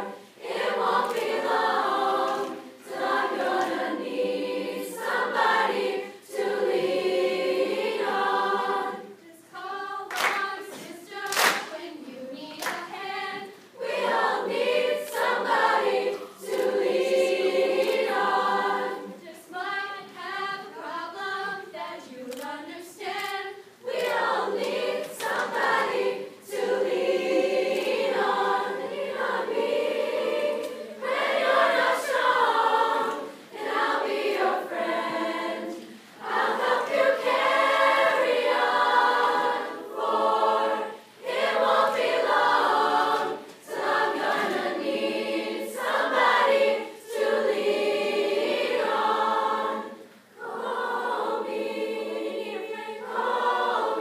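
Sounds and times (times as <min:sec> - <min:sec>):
youth chorus singing a cappella: 0:00.0 - 0:54.0
sharp claps: 0:10.1 - 0:11.8, 0:12.6 - 0:12.9.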